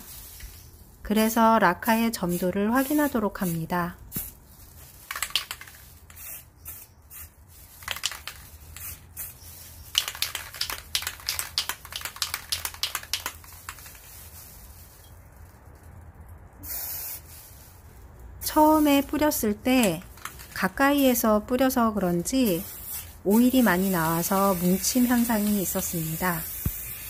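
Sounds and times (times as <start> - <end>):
aerosol can spraying: 1.9 - 15.0, 16.6 - 17.8, 22.2 - 27.0.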